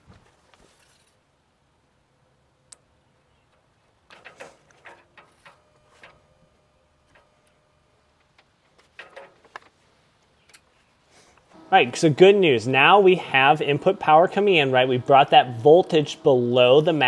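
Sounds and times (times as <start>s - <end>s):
connectors rattling: 3.5s - 6.2s.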